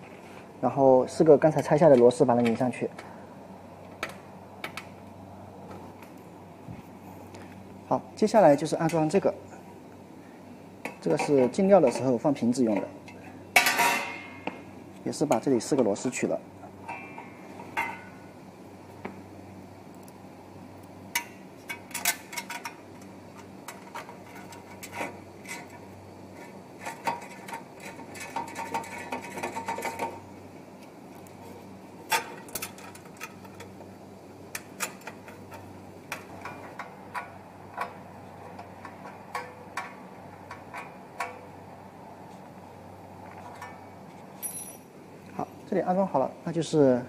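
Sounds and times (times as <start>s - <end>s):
steady low hum: 0.0s - 47.0s
metal clicks and clinks: 44.4s - 44.9s.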